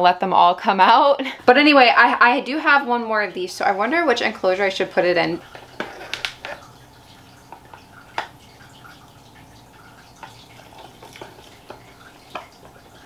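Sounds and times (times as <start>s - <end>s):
clicks and taps on plastic: 5.8s - 6.6s.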